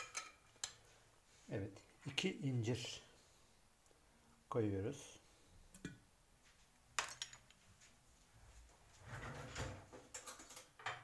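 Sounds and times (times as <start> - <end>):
kitchen handling noises: 0.0 - 1.0, 7.0 - 7.6, 9.0 - 11.0.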